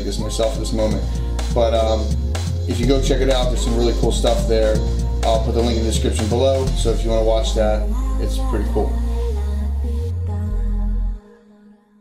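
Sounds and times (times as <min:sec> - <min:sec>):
music with heavy bass notes: 0:00.0 - 0:11.1.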